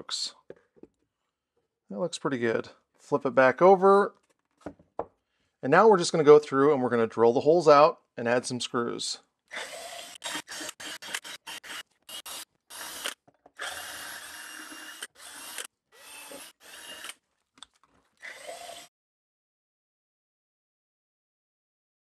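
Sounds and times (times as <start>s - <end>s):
cordless drill drilling into wood: 9.5s - 17.2s, 18.2s - 18.9s.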